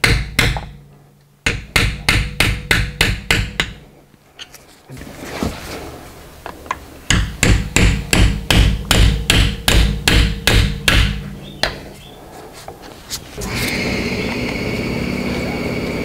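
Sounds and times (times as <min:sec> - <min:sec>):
hammer striking metal tool: 0:07.1 - 0:11.8.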